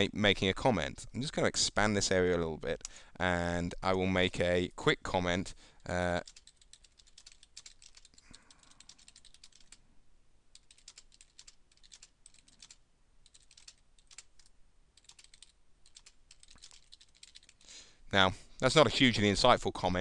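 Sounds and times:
faint keyboard typing: 0:05.8 - 0:09.8, 0:10.5 - 0:17.7.

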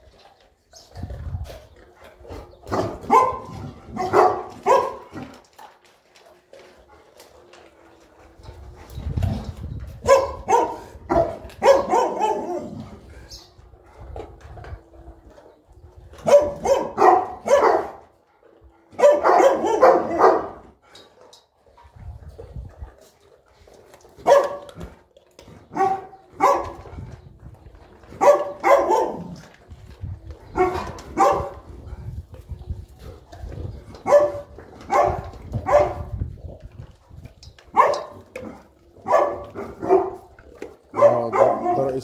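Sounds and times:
dog barking: 0:02.7 - 0:05.1, 0:10.0 - 0:12.7, 0:16.2 - 0:18.0, 0:19.0 - 0:20.6, 0:24.2 - 0:24.7, 0:25.8 - 0:26.8, 0:28.2 - 0:29.4, 0:30.6 - 0:31.6, 0:34.0 - 0:36.1, 0:37.7 - 0:38.2, 0:39.0 - 0:40.3, 0:40.9 - 0:42.0.

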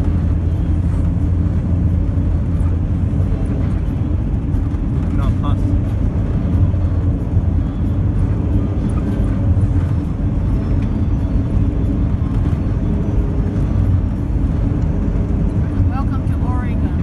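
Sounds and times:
road and engine rumble: 0:00.0 - 0:17.0.

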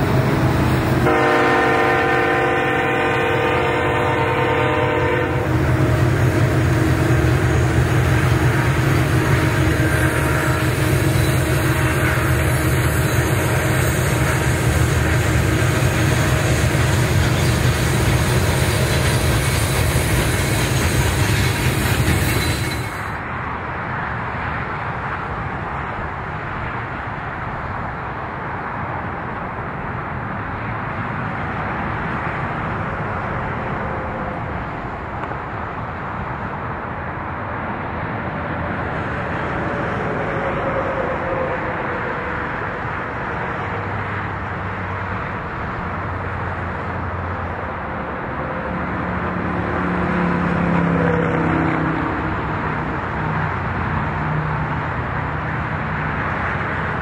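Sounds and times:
freight train rumbling by: 0:00.0 - 0:57.0
steady rushing noise: 0:00.0 - 0:57.0
locomotive air horn: 0:01.0 - 0:23.1.

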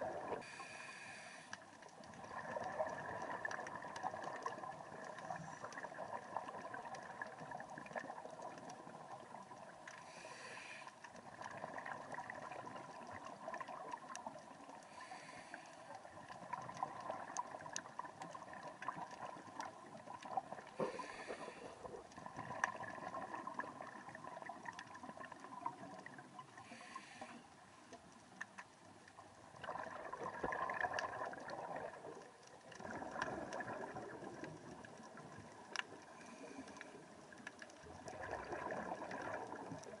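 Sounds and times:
exhaled regulator bubbles gurgling: 0:00.0 - 0:00.6, 0:01.9 - 0:10.5, 0:11.1 - 0:27.4, 0:29.2 - 0:40.0
watery hiss: 0:00.3 - 0:01.6, 0:10.0 - 0:11.0, 0:14.8 - 0:16.2, 0:20.8 - 0:22.0, 0:26.6 - 0:27.4.

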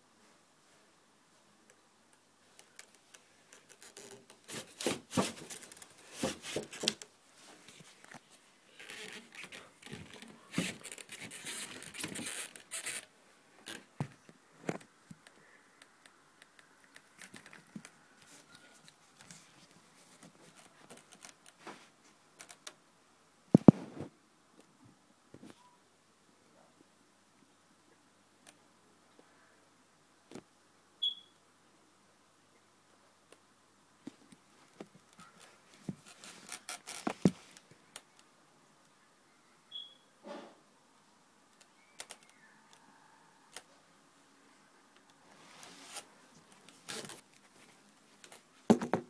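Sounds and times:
scraping and rustling handling noise: 0:02.4 - 0:15.3, 0:45.3 - 0:49.0.

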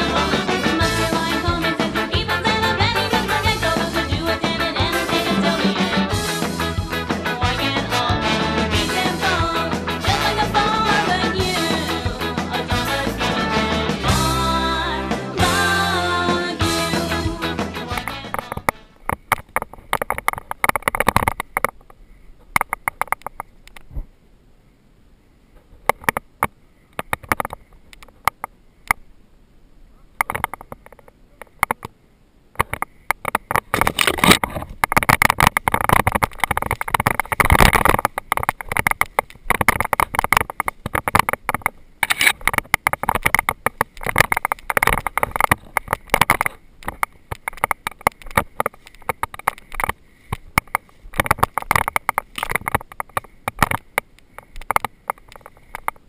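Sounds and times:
branches rustling and scraping: 0:32.6 - 0:56.0.

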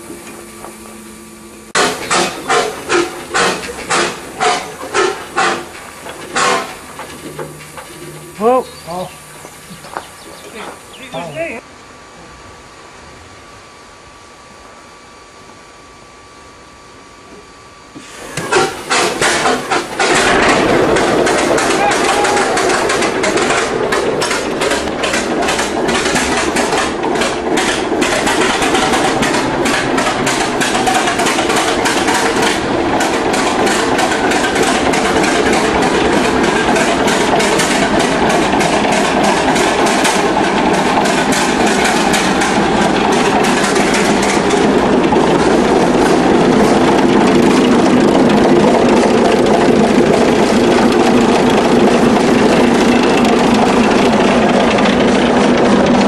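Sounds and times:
stationary diesel engine running: 0:00.0 - 0:11.6, 0:18.2 - 0:56.0.

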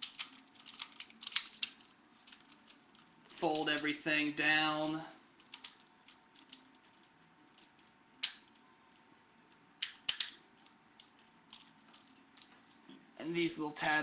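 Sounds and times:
plastic toy parts clicking: 0:00.0 - 0:03.8, 0:04.8 - 0:08.6, 0:09.5 - 0:12.5.

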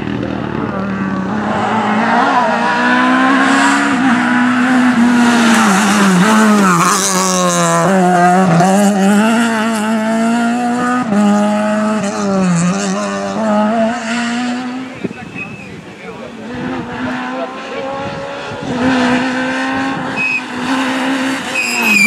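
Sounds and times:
rally car engine revving: 0:00.0 - 0:22.0
tyres squealing: 0:20.2 - 0:22.0.

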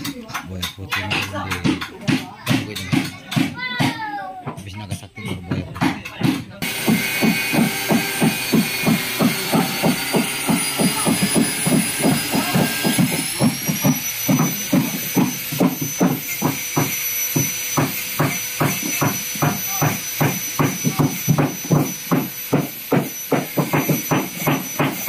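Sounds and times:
angle grinder whine: 0:06.6 - 0:25.0.

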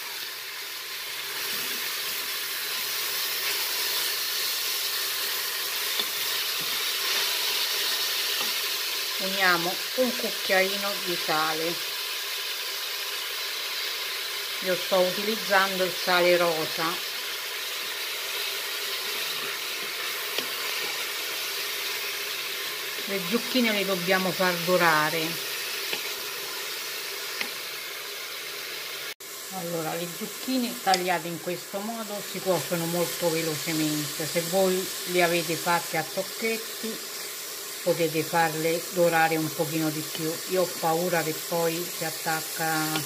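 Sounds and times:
vegetables sizzling in oil: 0:00.0 - 0:43.0.

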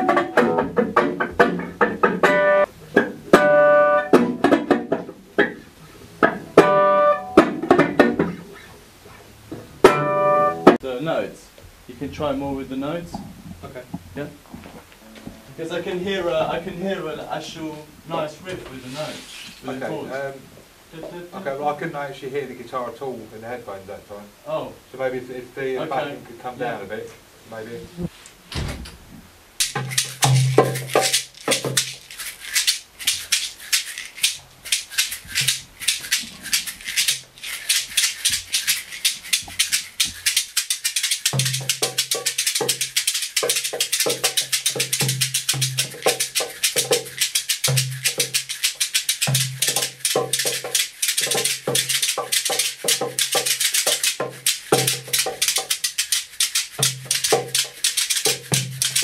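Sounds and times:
rattling percussion rhythm: 0:00.0 - 0:05.6, 0:29.6 - 0:59.0.

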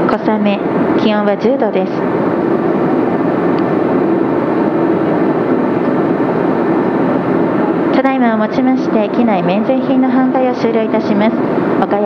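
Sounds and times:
faint steady hum: 0:00.0 - 0:12.0
airliner cabin rush: 0:02.0 - 0:09.7.

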